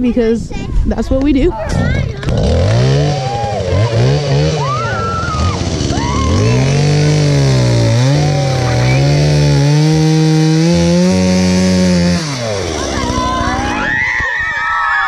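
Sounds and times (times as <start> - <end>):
chainsaw cutting wood: 2.2 - 14.0.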